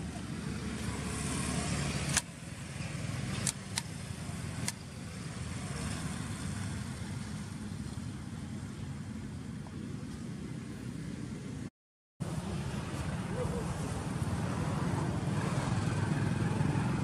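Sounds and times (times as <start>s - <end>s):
engine rumble: 0.0s - 17.0s
sharp clicks: 2.0s - 2.3s, 3.4s - 4.0s.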